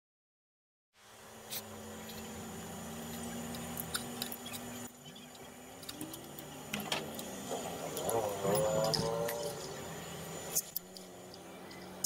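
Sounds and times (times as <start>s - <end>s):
steady low hum: 1.0s - 12.0s.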